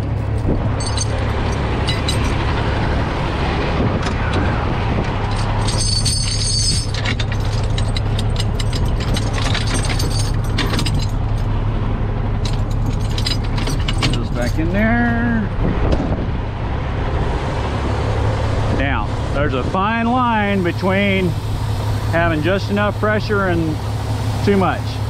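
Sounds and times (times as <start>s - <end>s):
metal chains clinking and rattling: 0.0s - 2.7s, 5.2s - 11.5s, 12.4s - 15.0s
truck engine idling hum: 0.0s - 25.0s.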